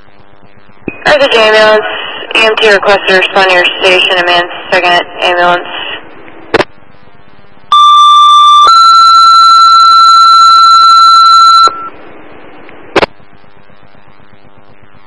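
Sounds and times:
radio hiss: 0.0 - 7.7.

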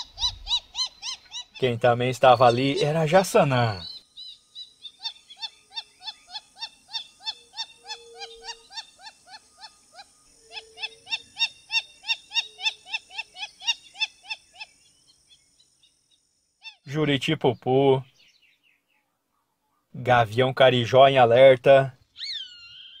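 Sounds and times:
bird calling short repeated notes: 0.0 - 1.6, 22.1 - 23.0.

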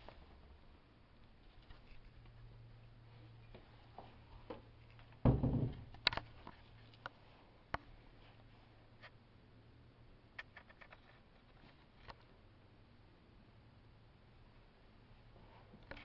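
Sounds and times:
cabinet door thumping shut: 5.2 - 5.9.

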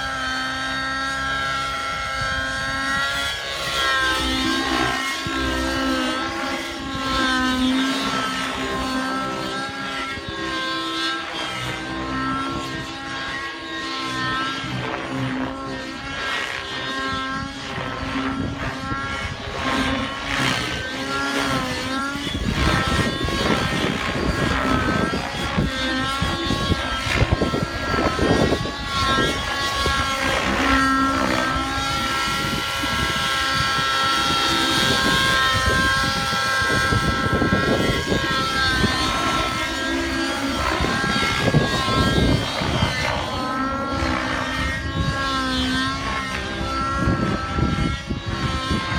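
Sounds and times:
model helicopter engine whine: 0.0 - 48.9
wind rumble on microphone: 0.0 - 48.9.

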